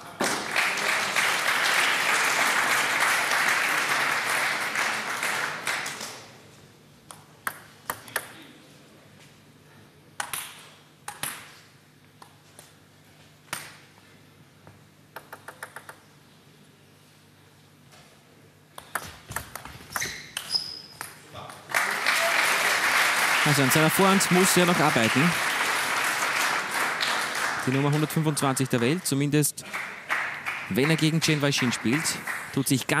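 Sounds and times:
crowd applauding: 0.0 - 6.3, 21.7 - 33.0
table tennis ball clicks: 7.1 - 8.4, 10.2 - 11.5, 15.2 - 16.0.

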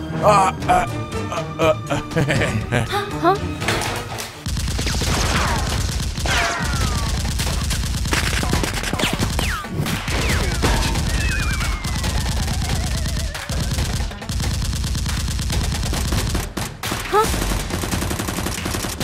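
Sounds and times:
automatic gunfire: 4.4 - 19.0.

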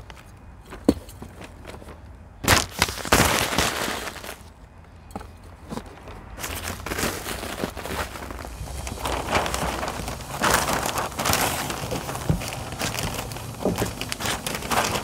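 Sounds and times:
compost scattering and scraping: 0.0 - 15.0
paper crinkling: 1.8 - 4.5, 5.7 - 15.0.

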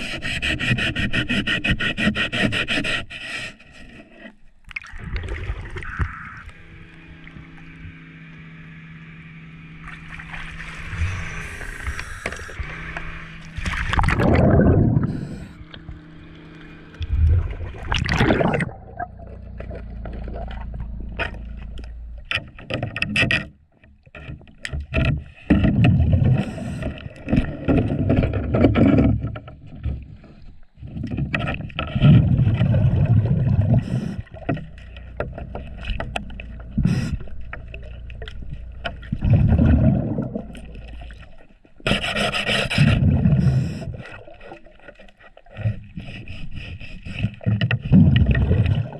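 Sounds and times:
gurgling exhaled bubbles underwater: 4.8 - 6.5, 13.6 - 16.2, 16.9 - 21.2, 25.6 - 41.4, 42.8 - 44.8, 47.4 - 48.9
splash of camera entering water: 17.3 - 20.0.

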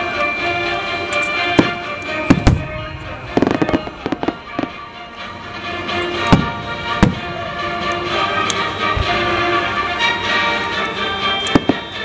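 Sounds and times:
music playing: 0.0 - 12.0
fireworks crackling pops: 1.1 - 4.8, 11.4 - 12.0
fireworks bangs: 1.3 - 5.0, 6.1 - 7.6, 11.5 - 12.0.

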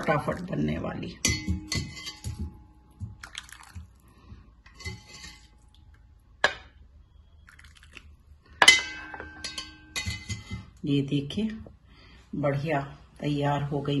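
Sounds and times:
ceramic bowl clinking on plate: 1.2 - 2.6, 8.6 - 10.6.

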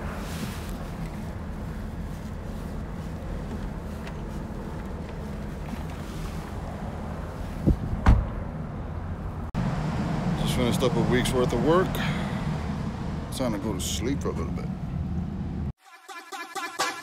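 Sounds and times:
low rumble of wind or traffic: 0.0 - 15.8
car trunk lid thudding shut: 7.7 - 8.4.

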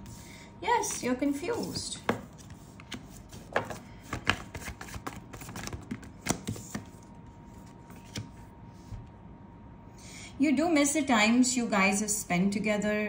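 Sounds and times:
cards sliding scrapes: 1.5 - 8.9
cards tapping on table: 2.0 - 6.9.

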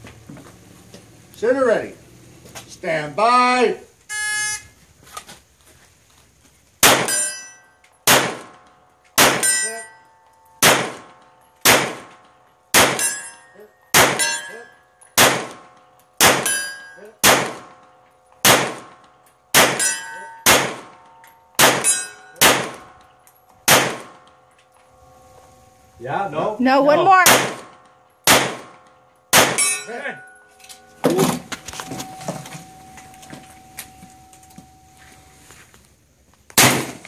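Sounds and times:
steel targets ringing: 6.8 - 26.1, 27.1 - 35.4
handgun shots: 8.1 - 8.6, 9.2 - 9.6, 10.6 - 13.2, 14.0 - 14.5, 15.2 - 17.8, 18.4 - 21.0, 21.6 - 22.9, 23.7 - 24.4, 27.2 - 29.8, 36.6 - 37.0.

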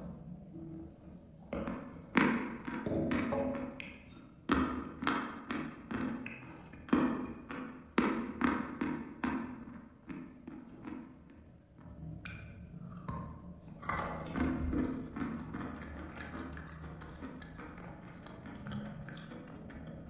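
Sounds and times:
chalk being chewed: 15.8 - 20.0.

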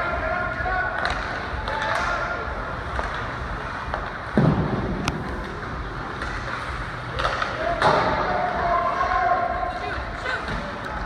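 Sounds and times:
arena noise: 0.0 - 11.0
heavy thud: 4.3 - 5.1.

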